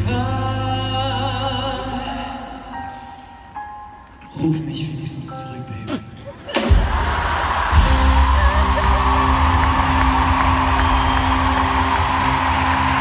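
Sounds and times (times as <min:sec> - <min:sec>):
heavy drums: 0:06.6 - 0:13.0
orchestra and band playing: 0:06.6 - 0:13.0
audience cheering: 0:06.7 - 0:13.0.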